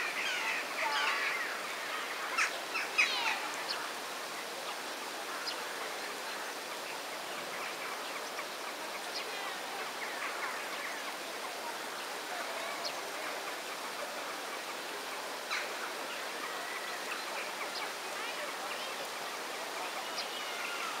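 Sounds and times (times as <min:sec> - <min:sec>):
faint bird calls: 0:05.2 - 0:21.0.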